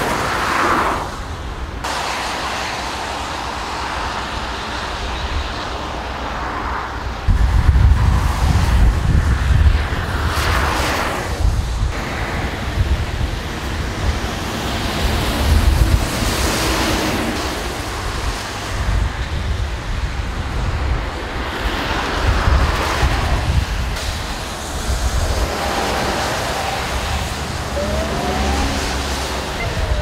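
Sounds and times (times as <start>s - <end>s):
vehicles hissing past on wet road: 0.0s - 30.0s
wind buffeting microphone: 6.9s - 30.0s.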